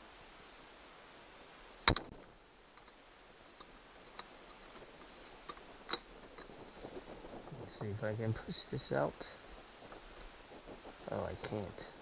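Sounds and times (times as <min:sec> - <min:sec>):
faint ticks: 0:01.8 - 0:12.0
sharp metallic click: 0:01.9 - 0:02.1.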